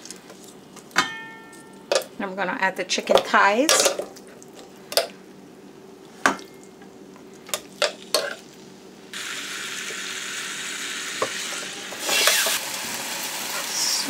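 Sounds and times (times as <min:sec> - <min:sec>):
meat sizzling: 0:07.7 - 0:14.0.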